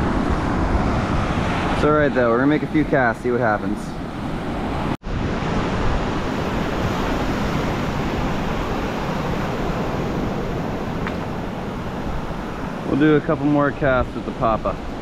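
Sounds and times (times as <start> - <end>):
wind buffeting microphone: 0.0 - 15.0
surf breaking on beach: 4.4 - 15.0.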